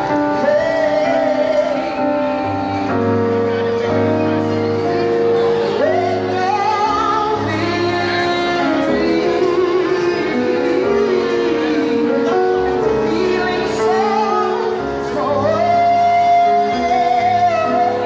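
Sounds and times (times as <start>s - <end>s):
keyboard accompaniment: 0.0s - 18.0s
woman singing lead: 0.0s - 18.0s
vocal group singing in harmony: 5.3s - 18.0s.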